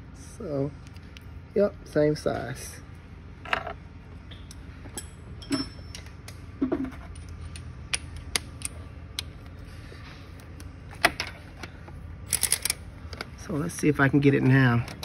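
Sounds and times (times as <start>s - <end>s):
metal tools clicking and clinking: 4.9s - 8.8s, 12.3s - 13.2s.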